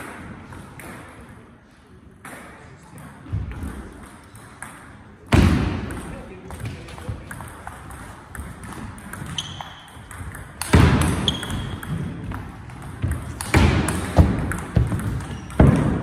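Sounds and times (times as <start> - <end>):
table tennis ball clicking: 7.3 - 15.8
short high squeaks: 9.3 - 9.9, 11.2 - 11.8.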